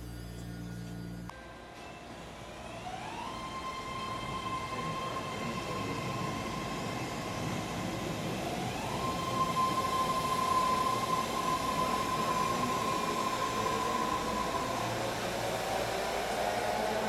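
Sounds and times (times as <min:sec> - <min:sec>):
train high-pitched whine: 0:00.0 - 0:17.0.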